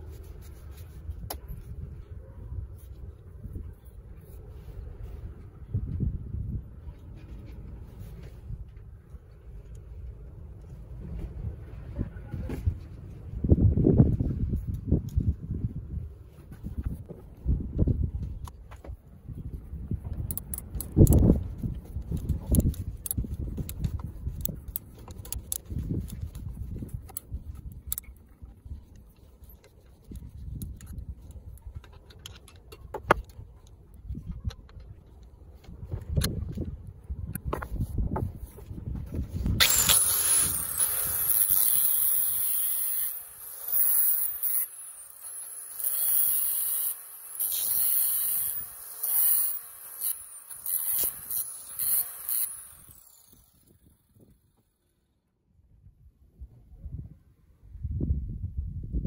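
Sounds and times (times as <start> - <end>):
angle grinder grinding steel: 39.6 - 53.8.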